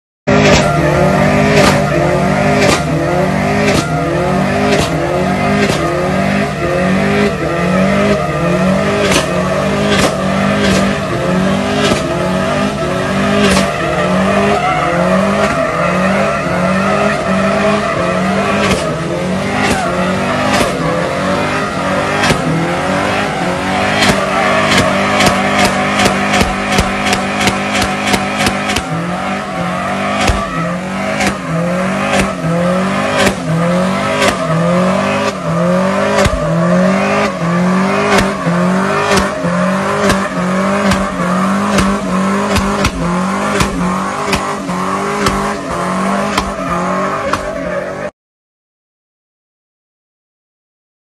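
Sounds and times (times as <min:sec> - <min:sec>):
engine running hard: 0:00.3 - 0:48.1
tyres squealing: 0:00.3 - 0:48.1
sharp cracks: 0:19.6 - 0:20.9, 0:23.8 - 0:29.0, 0:38.0 - 0:44.6.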